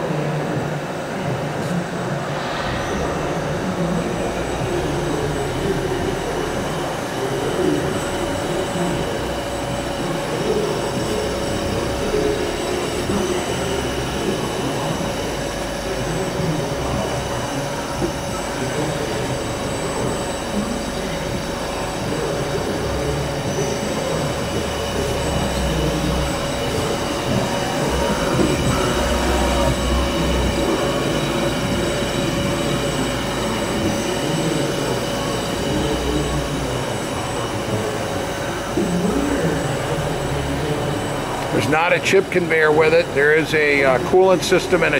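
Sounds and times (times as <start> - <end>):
lathe machine running: 0.0 - 44.9.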